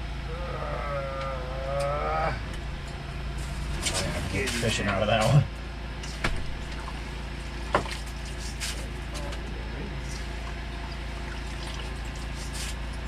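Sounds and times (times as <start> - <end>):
low mechanical hum: 0.0 - 13.0
water trickling and splashing: 6.6 - 9.0, 10.2 - 13.0.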